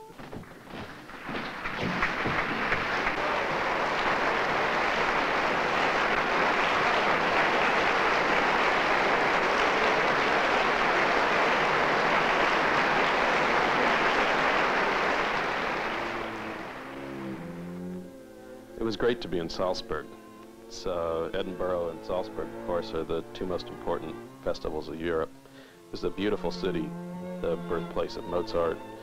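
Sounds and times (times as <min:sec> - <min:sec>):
audience applauding: 0:00.0 - 0:18.0, 0:27.4 - 0:29.0.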